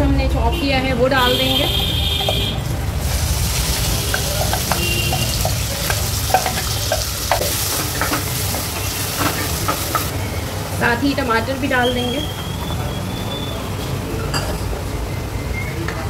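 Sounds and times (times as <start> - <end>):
onion sizzling in hot oil: 2.0 - 12.6
wooden spatula tapping and scraping: 3.9 - 10.1.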